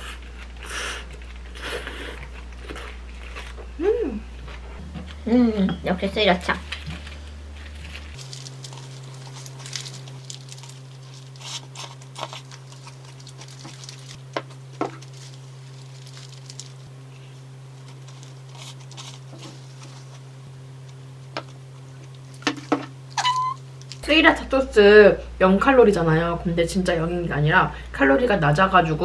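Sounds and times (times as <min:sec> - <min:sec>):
biting and chewing: 0:00.0 - 0:03.8, 0:06.7 - 0:16.9
steady low hum: 0:00.0 - 0:29.0
paper wrapper crinkling: 0:06.6 - 0:16.9, 0:17.8 - 0:20.2
squeeze bottle squeezing: 0:23.1 - 0:23.6.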